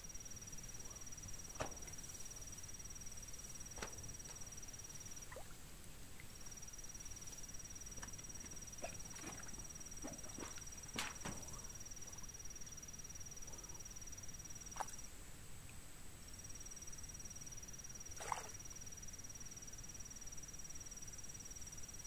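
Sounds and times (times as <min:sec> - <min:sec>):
insect trilling: 0:00.4 - 0:05.6, 0:06.2 - 0:12.8.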